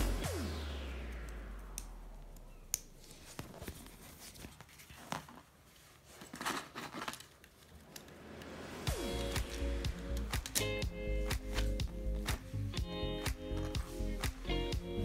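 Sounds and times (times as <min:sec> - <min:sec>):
background music: 0:00.0 - 0:01.6, 0:08.4 - 0:15.0.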